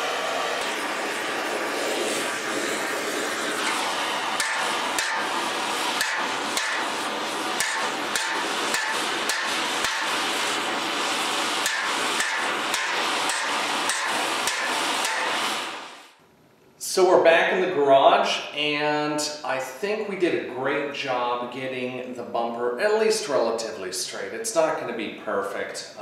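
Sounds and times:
torch flame hissing roar: 0.0s - 16.2s
hammer striking steel: 4.4s - 7.0s, 7.6s - 10.2s, 11.6s - 15.5s.

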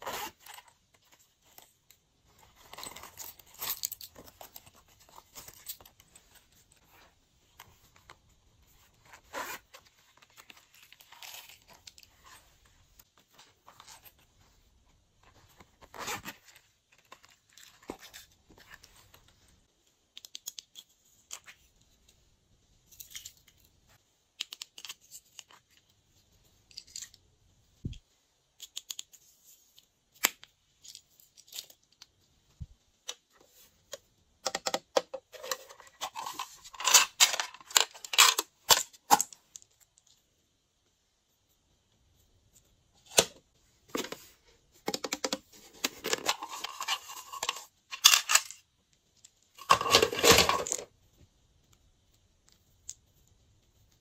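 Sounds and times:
zipper pouch opening: 0.0s - 0.7s, 9.0s - 10.3s, 15.8s - 16.6s.

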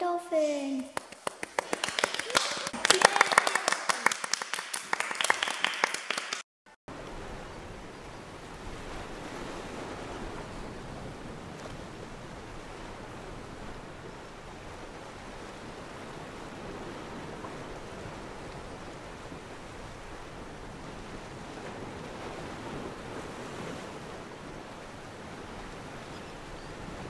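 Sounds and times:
sea waves and surf: 6.9s - 27.0s.

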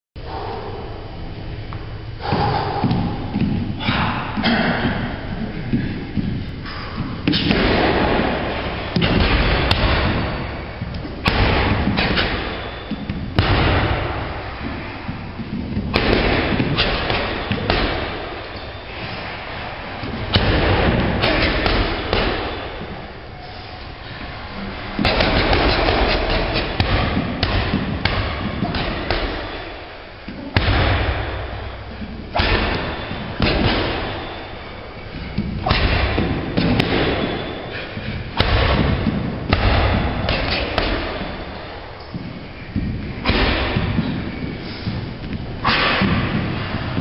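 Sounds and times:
gloved punches on heavy bag: 7.2s - 10.5s, 11.2s - 14.6s, 15.8s - 18.4s, 20.3s - 22.8s, 25.0s - 29.7s, 30.6s - 34.4s, 35.2s - 37.6s, 38.4s - 41.6s, 43.2s - 44.2s, 45.7s - 47.0s.

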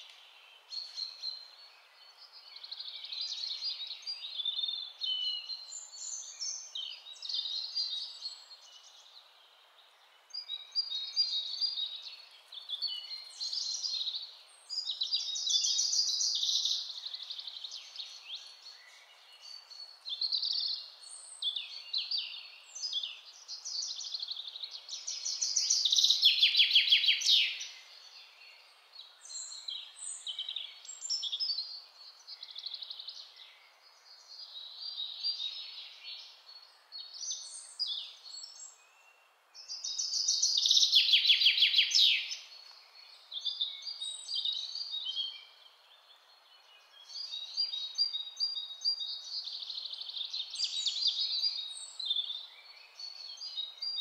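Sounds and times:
birds chirping and trilling: 0.0s - 54.0s
faint outdoor hiss: 0.0s - 54.0s.

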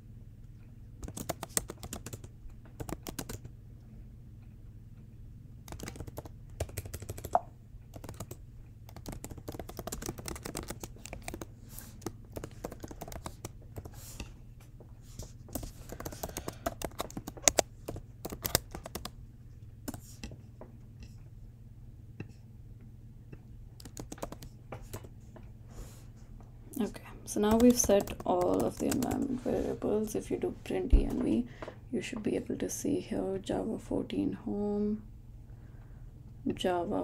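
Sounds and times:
faint low hum: 0.0s - 37.0s
typing on computer keyboard: 1.0s - 3.5s, 5.6s - 14.0s, 15.5s - 19.2s, 19.9s - 20.1s, 23.8s - 25.1s, 27.4s - 29.4s.

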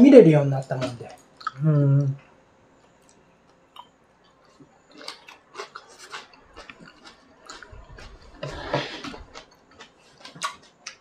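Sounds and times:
chewing: 2.8s - 11.0s.

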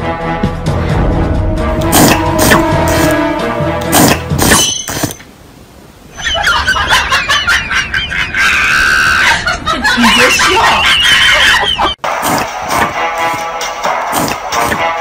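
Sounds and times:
person laughing and squealing: 6.1s - 12.0s.

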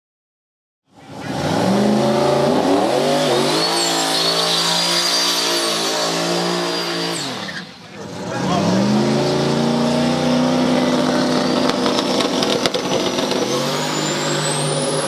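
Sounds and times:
pickup truck engine revving: 1.0s - 15.0s
tyres squealing: 2.6s - 8.0s, 10.2s - 15.0s.

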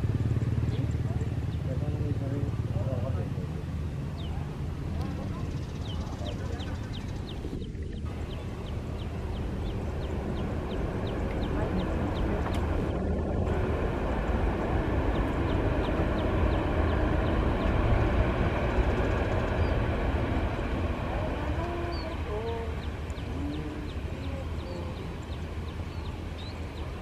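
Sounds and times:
distant jet engines rumbling: 0.0s - 27.0s
faint wavering calls: 20.6s - 27.0s.

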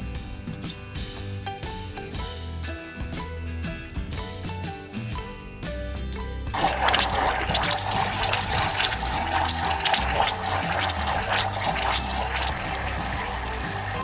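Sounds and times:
background music: 0.0s - 14.0s
syrup boiling in saucepan: 6.6s - 14.0s.

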